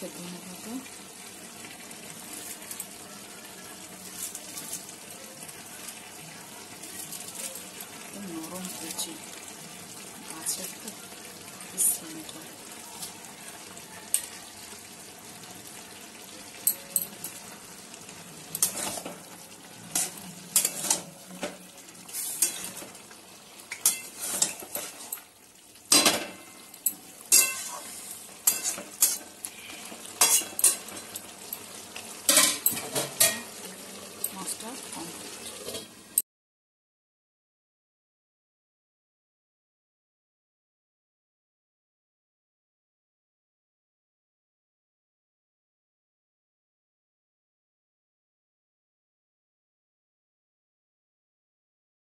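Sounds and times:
curry sizzling: 0.0s - 36.2s
metal spatula scraping a pan: 4.0s - 4.9s, 18.6s - 19.3s, 19.9s - 23.0s, 23.7s - 25.2s, 25.9s - 33.7s, 35.3s - 36.0s.

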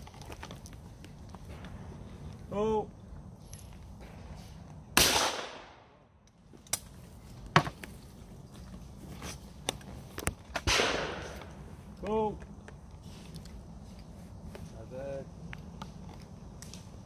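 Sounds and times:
shotgun shots with echo: 5.0s - 5.9s, 10.6s - 11.4s.

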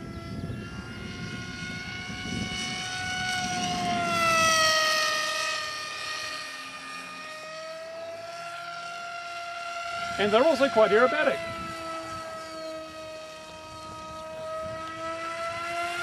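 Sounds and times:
model plane motor whining: 0.0s - 16.0s.

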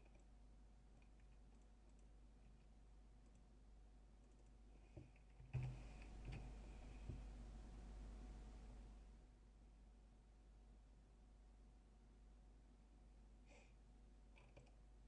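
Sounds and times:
computer mouse clicks: 0.0s - 0.3s, 1.0s - 3.5s, 4.2s - 6.5s, 14.3s - 14.8s
low steady hum: 0.0s - 15.0s.

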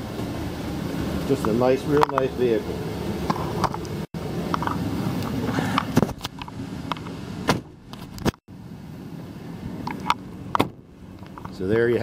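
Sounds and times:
air-conditioning blower hum: 0.0s - 11.9s
handling knocks and clicks: 1.4s - 2.4s, 3.3s - 8.4s, 9.8s - 11.6s
loud thump: 7.4s - 7.8s.

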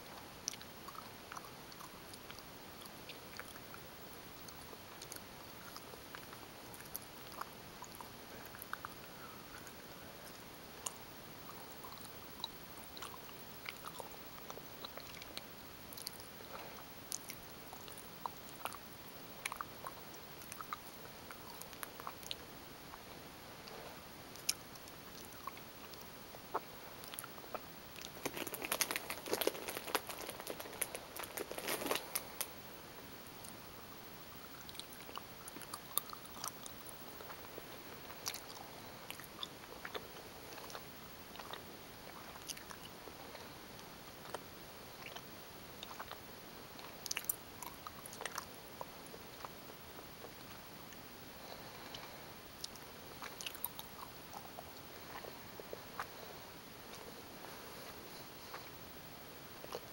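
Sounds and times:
chewing mouth clicks and smacks: 24.4s - 32.5s, 45.8s - 46.2s, 52.6s - 55.4s.

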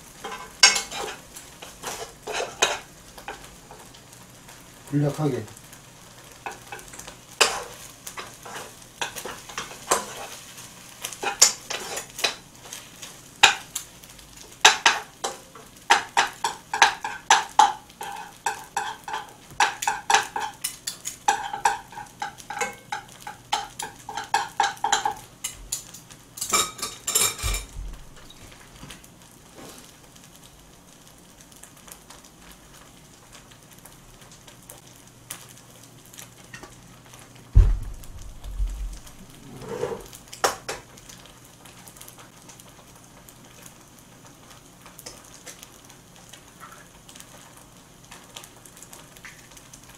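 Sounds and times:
rice sizzling: 0.0s - 49.9s
metal spoon scraping a wok: 0.2s - 2.8s, 11.2s - 12.4s, 39.4s - 40.1s.

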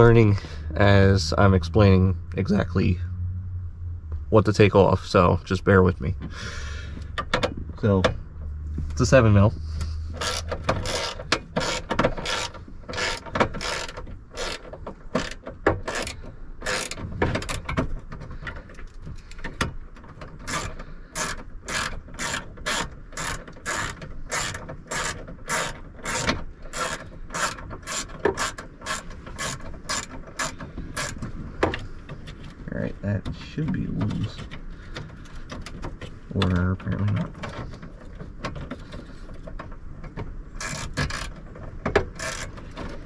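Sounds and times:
ratchet wrench pawl clicking: 10.2s - 14.6s, 15.2s - 17.0s, 20.5s - 31.2s, 40.6s - 41.4s, 42.1s - 42.6s.

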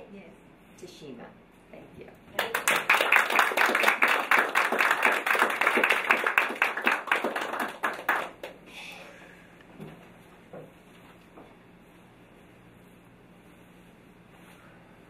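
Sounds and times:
audience applauding: 2.4s - 8.6s.

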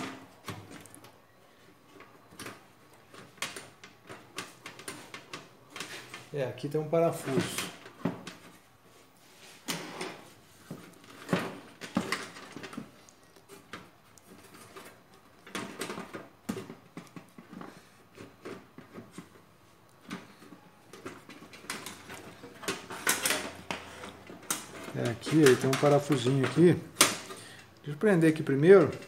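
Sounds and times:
hands handling sheet metal: 9.3s - 29.0s.

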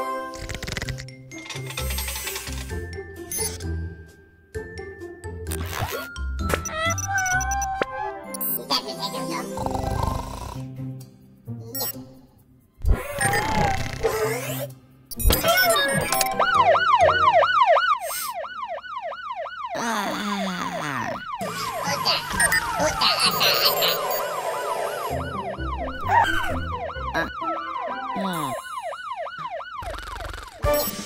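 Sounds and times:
cartoon electronic siren warbling: 6.6s - 8.1s, 12.9s - 14.4s, 15.3s - 18.8s, 19.4s - 30.9s
jumbled noise and falling tones: 21.8s - 28.1s.

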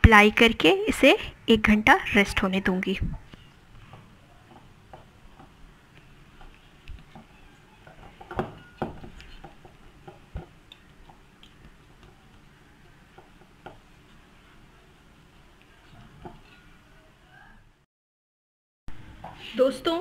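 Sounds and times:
hand kneading dough: 3.1s - 16.8s.

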